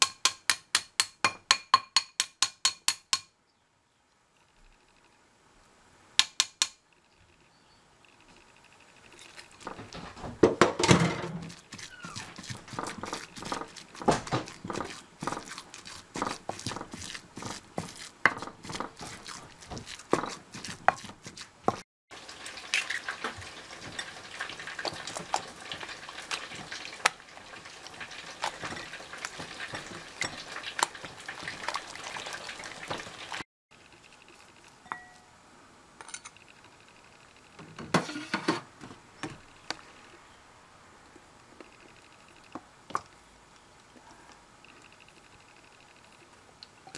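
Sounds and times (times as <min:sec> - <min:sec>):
pestle knocking in mortar: 0:10.4 - 0:21.8
wet stirring of paste: 0:11.2 - 0:21.8, 0:22.7 - 0:33.1.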